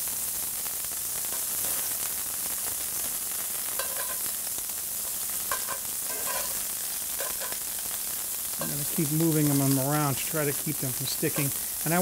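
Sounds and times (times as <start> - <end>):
scallops sizzling in oil: 0.0 - 12.0
metal tongs clinking against pan: 3.8 - 4.2, 5.5 - 6.6, 7.2 - 7.6.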